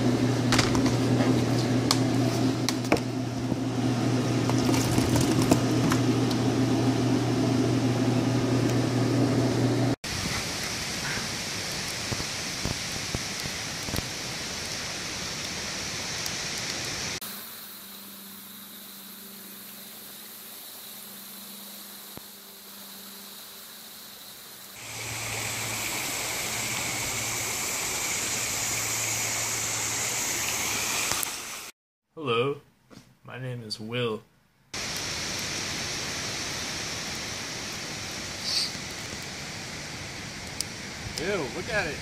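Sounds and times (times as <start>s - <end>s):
campfire crackling: 0.0s - 31.7s, 34.7s - 42.0s
distant flowing water: 10.1s - 31.7s, 34.8s - 42.0s
stream rushing: 24.8s - 31.7s.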